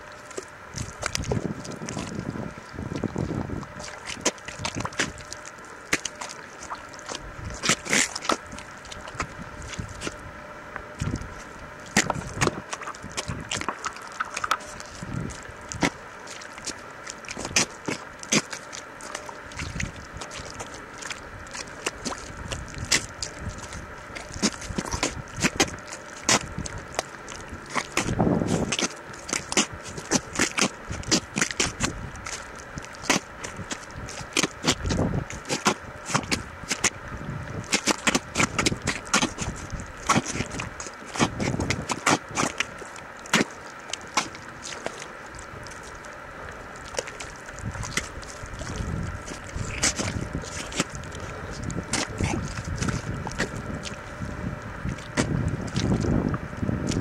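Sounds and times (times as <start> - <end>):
bare feet squelching in mud: 0.0 - 10.3, 10.9 - 57.0.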